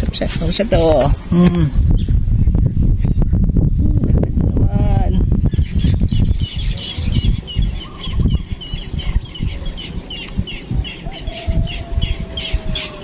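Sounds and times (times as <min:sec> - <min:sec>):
low rumbling noise: 0:00.0 - 0:13.0
bird chirping: 0:05.2 - 0:13.0.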